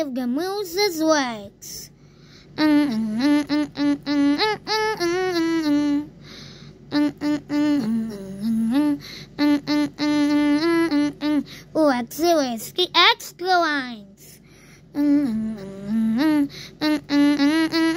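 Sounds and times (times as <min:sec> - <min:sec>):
person humming a tune: 0:02.6 - 0:11.7, 0:14.9 - 0:17.9.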